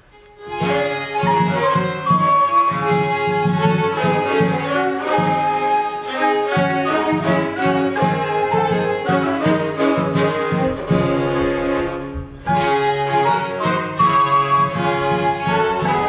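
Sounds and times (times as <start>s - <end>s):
bowed bass viol: 0.0s - 16.0s
violins playing melody: 0.0s - 16.0s.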